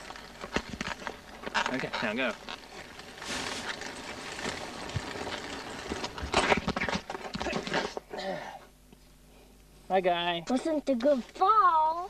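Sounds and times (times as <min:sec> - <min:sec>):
bicycle falling onto pavement: 0:00.0 - 0:08.0.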